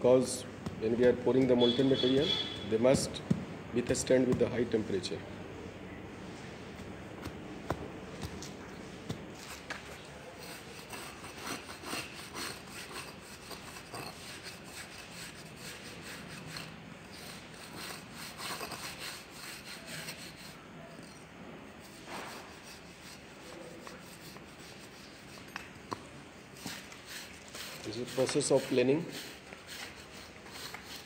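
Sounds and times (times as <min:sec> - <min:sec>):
trowel scraping sand: 0:09.0 - 0:21.2, 0:21.8 - 0:25.6, 0:26.6 - 0:31.0.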